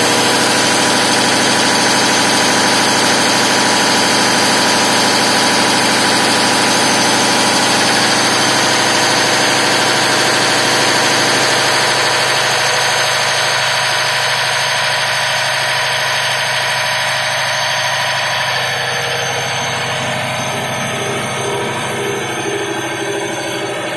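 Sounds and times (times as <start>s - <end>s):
diesel generator engine running: 0.0s - 23.9s.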